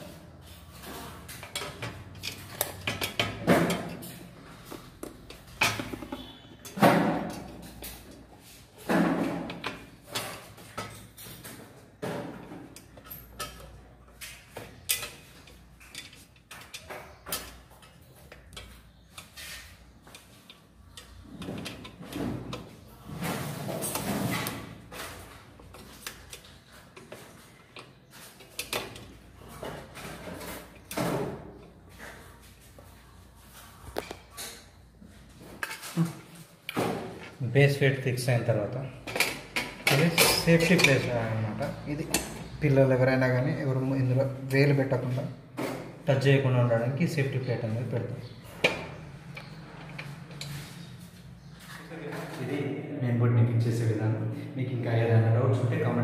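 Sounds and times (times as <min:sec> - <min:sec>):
knocks clicks and scraping: 0:00.4 - 0:32.6, 0:48.0 - 0:52.4.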